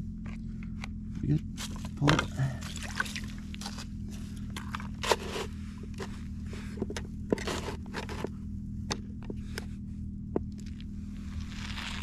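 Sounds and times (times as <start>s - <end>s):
plastic scraping on crushed ice: 4.5s - 6.1s, 7.3s - 8.3s, 11.3s - 12.0s.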